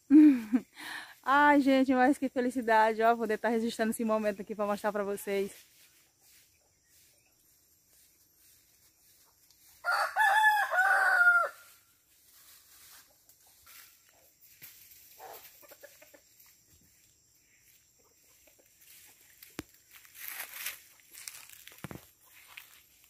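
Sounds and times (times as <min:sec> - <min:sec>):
rooster crowing: 0:09.8 - 0:11.9.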